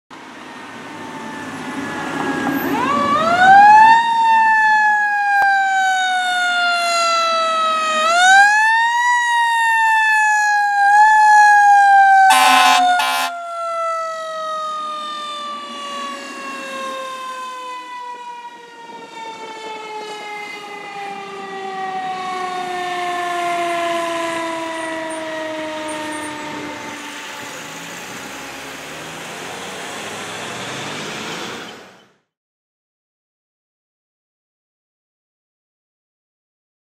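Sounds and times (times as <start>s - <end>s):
air horn blasts: 12.3s - 13.4s.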